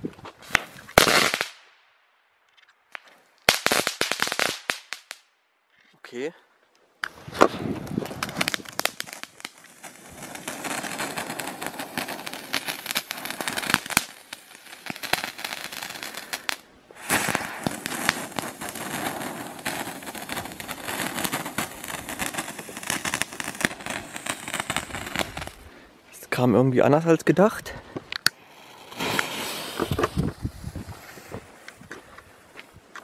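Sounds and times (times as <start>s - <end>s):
firework hissing and crackling: 3.5s - 5.2s, 7.0s - 25.7s, 28.3s - 31.9s.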